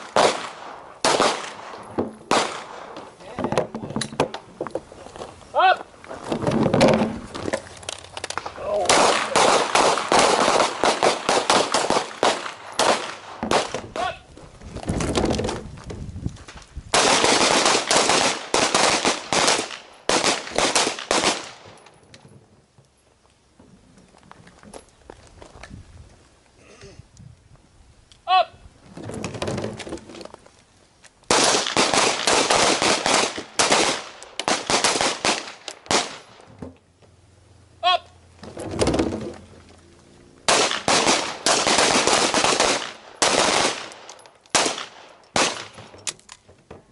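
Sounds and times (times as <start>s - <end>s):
pistol shots with echo: 0.0s - 1.7s, 2.3s - 3.0s, 8.8s - 13.8s, 40.5s - 45.8s
handguns firing: 40.5s - 46.0s.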